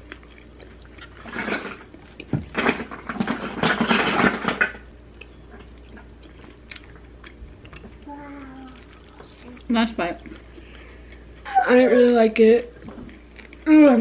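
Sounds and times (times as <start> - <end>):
chewing close to microphone: 0.0 - 3.6, 5.1 - 11.3.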